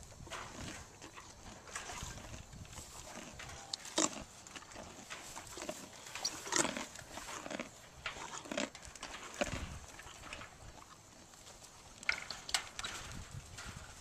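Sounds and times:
mule chewing carrots: 0:00.0 - 0:14.0.

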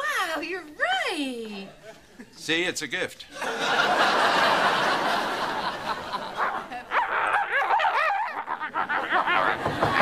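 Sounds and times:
studio audience laughter: 0:03.4 - 0:06.9, 0:08.0 - 0:10.0.

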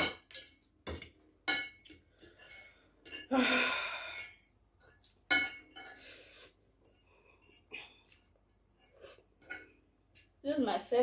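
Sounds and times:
forks clinking on plates: 0:00.0 - 0:03.3, 0:04.2 - 0:06.0
breathy sound: 0:02.6 - 0:04.4.

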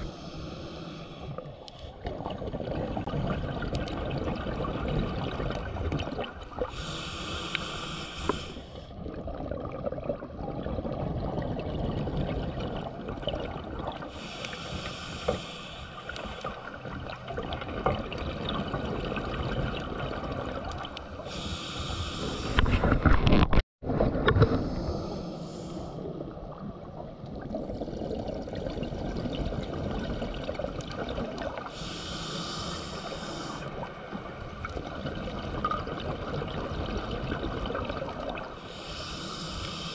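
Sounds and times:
regulator breathing hiss: 0:00.0 - 0:01.3, 0:06.7 - 0:08.9, 0:14.1 - 0:16.6, 0:21.3 - 0:22.6, 0:24.6 - 0:26.0, 0:31.7 - 0:33.7, 0:38.6 - 0:39.9
underwater bubbling: 0:00.0 - 0:39.9.

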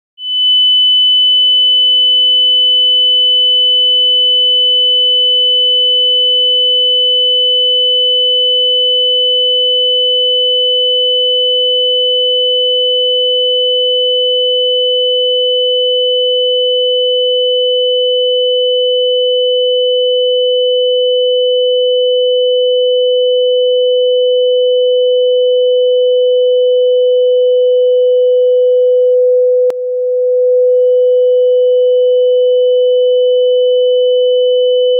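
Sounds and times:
high whistle-like sine tone: 0:00.2 - 0:13.9
lower sine tone: 0:00.2 - 0:34.9.

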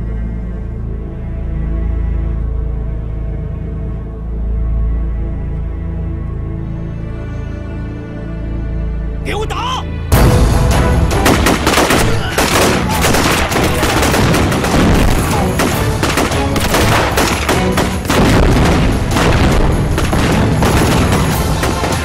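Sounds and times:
dramatic background music: 0:00.0 - 0:22.0
explosion booms: 0:10.1 - 0:22.0
dense gunfire: 0:10.5 - 0:22.0.

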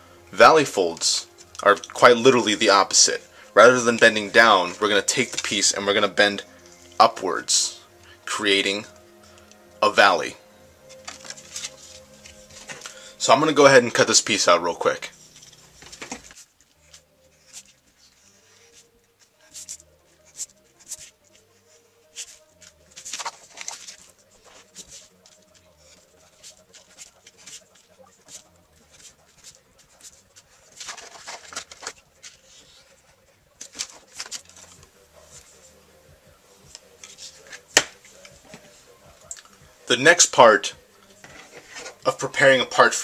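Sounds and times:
paper sheet handled: 0:22.1 - 0:33.0.

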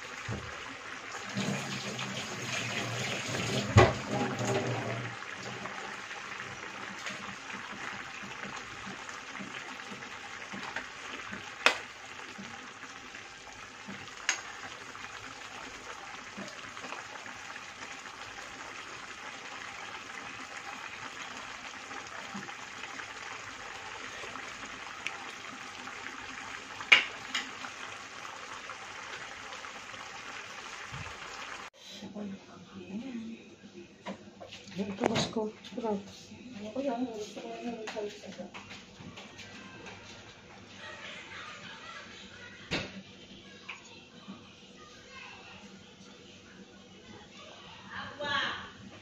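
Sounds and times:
sauce bubbling in a frying pan: 0:00.0 - 0:31.8
sharp pops from pan: 0:11.6 - 0:12.0, 0:14.2 - 0:14.5, 0:26.8 - 0:27.6.

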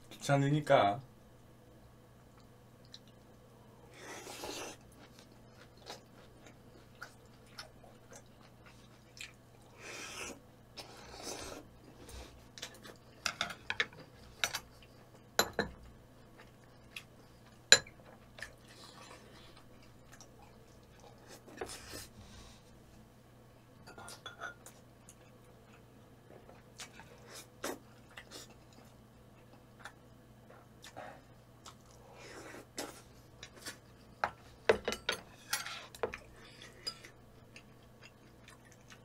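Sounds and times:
person chewing: 0:04.0 - 0:13.2, 0:16.2 - 0:22.0, 0:30.6 - 0:34.1, 0:35.8 - 0:39.0
utensils clinking against dishes: 0:34.7 - 0:35.9.

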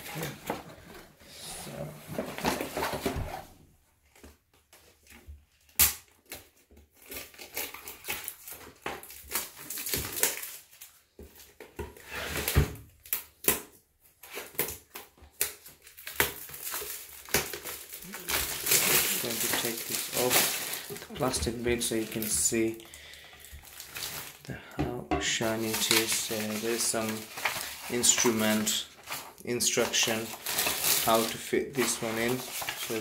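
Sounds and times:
cardboard box rustling: 0:02.0 - 0:03.6, 0:17.6 - 0:22.6
plastic wrap crinkling: 0:05.5 - 0:11.6, 0:14.2 - 0:24.6, 0:25.3 - 0:33.0.

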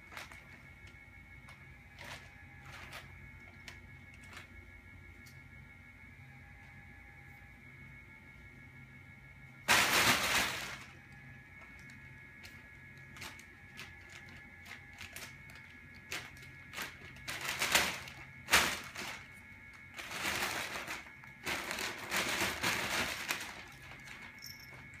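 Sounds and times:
plastic bag crinkling: 0:01.9 - 0:04.5, 0:09.7 - 0:11.0, 0:11.8 - 0:25.0.

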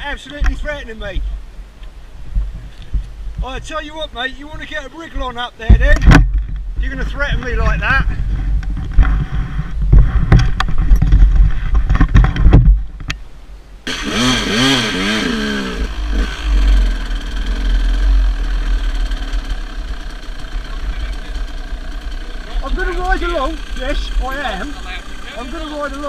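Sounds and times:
heavy rumble and knocks: 0:04.5 - 0:13.2
dirt bike engine revving: 0:13.8 - 0:26.0.

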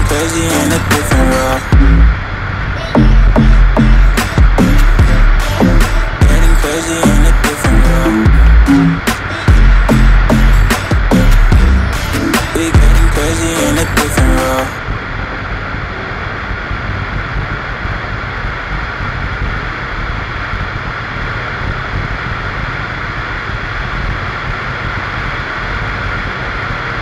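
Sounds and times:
turboprop engine and propeller: 0:00.0 - 0:27.0
wind rushing over microphone: 0:14.8 - 0:27.0.

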